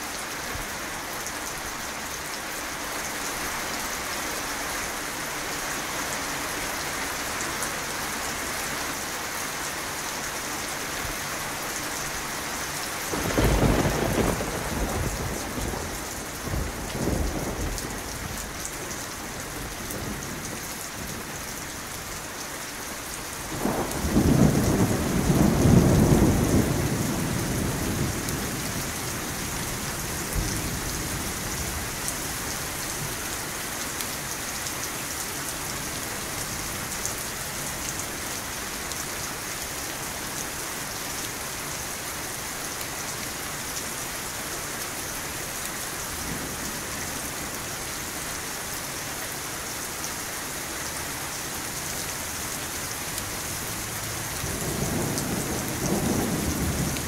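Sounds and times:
steady rain: 0.0 - 57.0
rolling thunder: 13.1 - 18.4, 23.5 - 29.5, 53.8 - 57.0.

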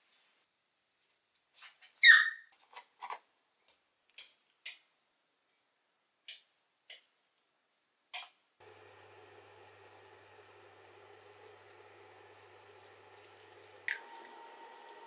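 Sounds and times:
squeak falling in pitch: 2.0 - 2.4.

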